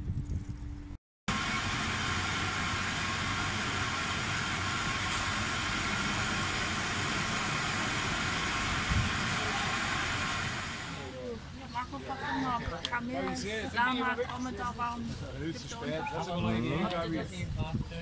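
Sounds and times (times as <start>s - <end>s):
processing machinery hum and hiss: 1.3s - 11.5s.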